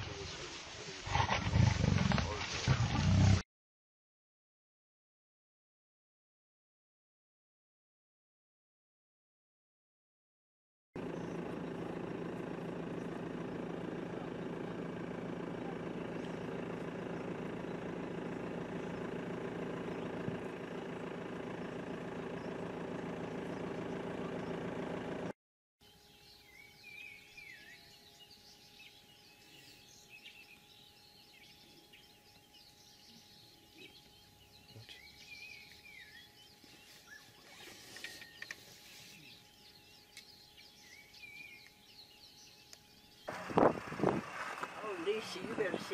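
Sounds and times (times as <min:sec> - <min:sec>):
birds chirping: 0:11.0 - 0:25.1, 0:25.8 - 0:45.9
vehicle engine idling: 0:11.0 - 0:25.4, 0:28.9 - 0:45.9.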